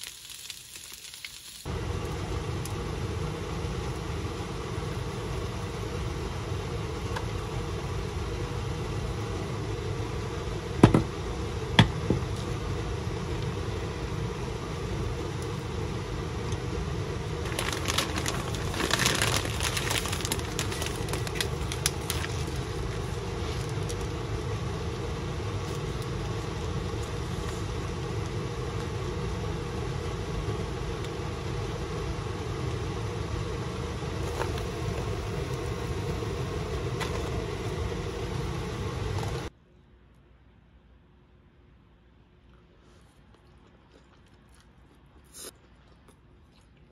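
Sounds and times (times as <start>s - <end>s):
food packet crinkling: 0.0s - 1.7s, 17.4s - 24.1s
steady low hum: 1.6s - 46.9s.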